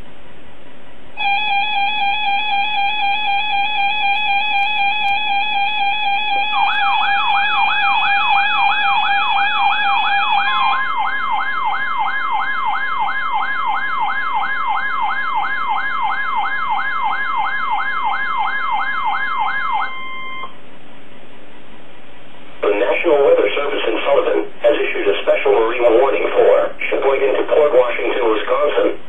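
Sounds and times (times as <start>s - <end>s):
steady alarm tone: 1.2s - 20.6s.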